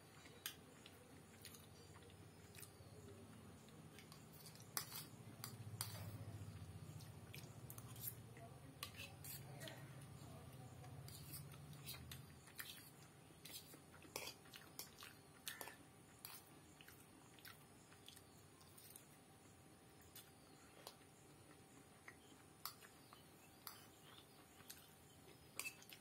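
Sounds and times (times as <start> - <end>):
low background hum: 0.0 - 26.0
soft chewing: 0.0 - 26.0
fork clicking on a plate: 4.1 - 6.1, 25.6 - 26.0.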